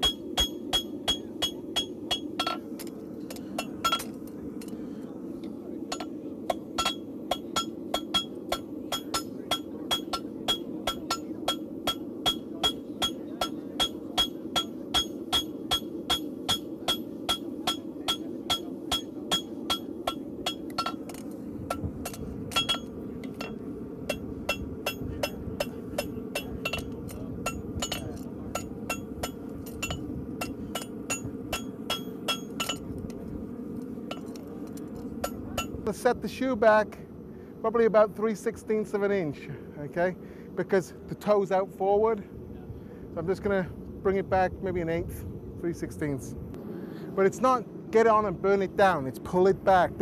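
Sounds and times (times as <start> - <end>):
hammer striking horseshoe on anvil: 0.0 - 2.6, 3.6 - 4.1, 5.9 - 32.9, 35.2 - 35.8.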